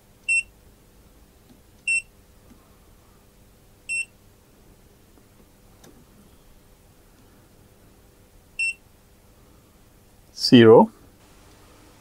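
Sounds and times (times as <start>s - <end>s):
clamp meter beeping: 0.3s - 0.5s, 1.9s - 2.1s, 3.9s - 4.1s, 8.6s - 8.8s.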